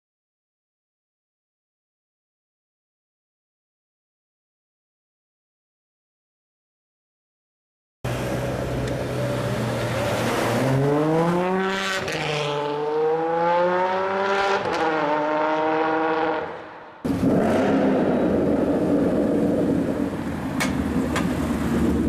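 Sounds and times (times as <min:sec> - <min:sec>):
car engine accelerating: 0:08.1 - 0:16.4, 0:17.1 - 0:22.0
loud rough car exhaust: 0:17.1 - 0:22.0.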